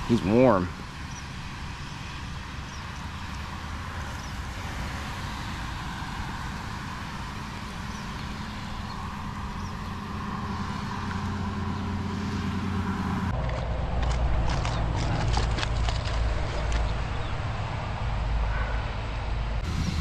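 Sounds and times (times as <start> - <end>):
steady rushing outdoor noise: 0.0 - 20.0
low hum: 5.6 - 20.0.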